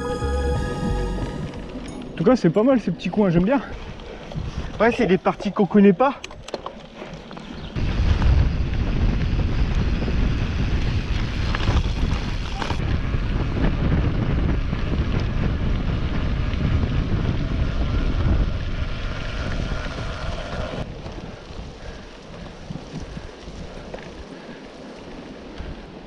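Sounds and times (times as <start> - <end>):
tyres rolling on dirt trail: 1.0 - 26.0
wind buffeting microphone: 2.3 - 5.1, 7.4 - 26.0
bike clicks and rattles: 3.6 - 13.0, 19.4 - 25.8.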